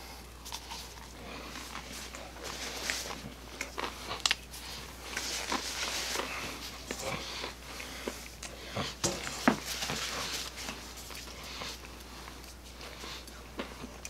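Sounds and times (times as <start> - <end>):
paper napkin rustling: 1.7 - 3.2, 4.6 - 6.9, 9.2 - 11.2.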